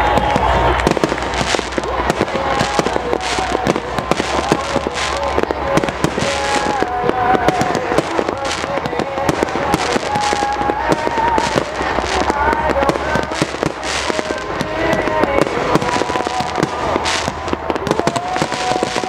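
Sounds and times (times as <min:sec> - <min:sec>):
fireworks bangs and crackling: 0:00.0 - 0:19.0.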